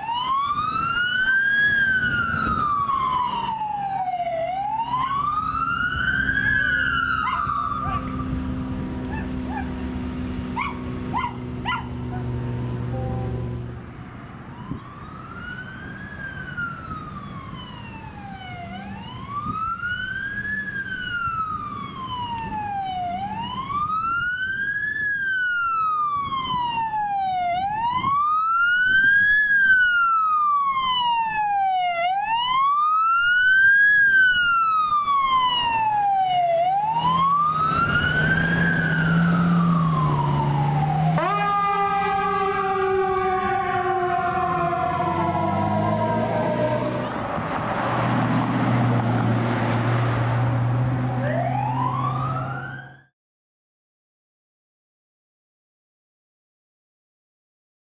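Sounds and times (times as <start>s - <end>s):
electronic siren wailing: 0.0s - 13.8s, 14.5s - 47.4s, 51.2s - 53.1s
vehicle engine rumbling: 0.0s - 24.4s, 34.4s - 53.0s.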